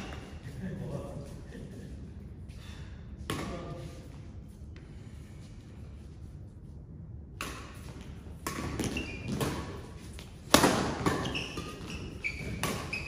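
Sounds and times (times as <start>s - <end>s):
racket hitting shuttlecock: 3.2s - 3.8s, 7.3s - 13.0s
shoe squeaks on court: 8.7s - 9.7s, 11.0s - 13.0s.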